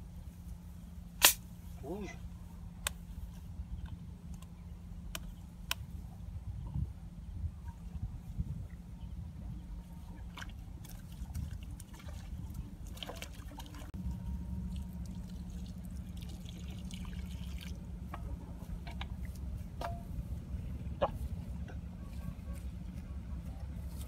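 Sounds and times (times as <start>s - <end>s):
steady low rumble: 0.0s - 24.0s
muddy water trickling and splashing: 9.9s - 19.5s.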